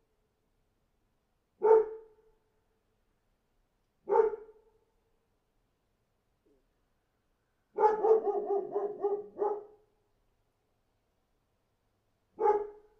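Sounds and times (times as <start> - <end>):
dog barking: 1.6 - 2.1, 4.1 - 4.6, 7.8 - 9.8, 12.4 - 12.9.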